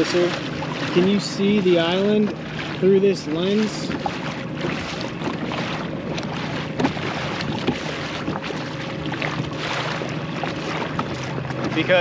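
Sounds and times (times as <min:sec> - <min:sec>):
steady low hum: 0:00.0 - 0:12.0
water splashing along a hull: 0:00.0 - 0:12.0
wind buffeting microphone: 0:03.6 - 0:12.0.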